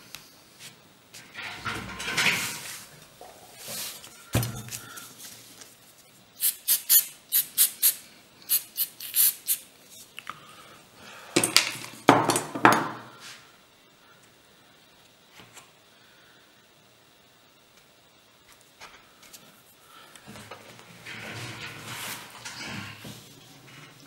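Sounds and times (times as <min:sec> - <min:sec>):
aerosol spray hissing puffs: 0:06.4 - 0:10.1.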